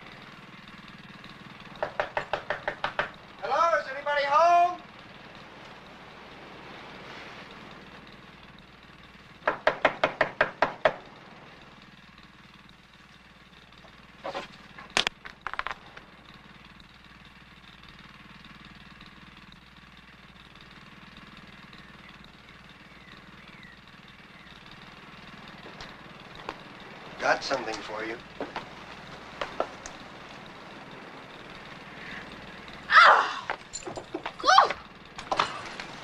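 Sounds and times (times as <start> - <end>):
sharp knocks: 1.8 - 3.2, 9.4 - 11.0.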